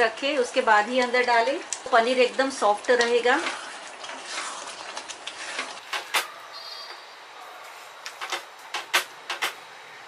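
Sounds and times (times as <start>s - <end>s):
spatula stirring thick gravy: 1.0s - 5.9s.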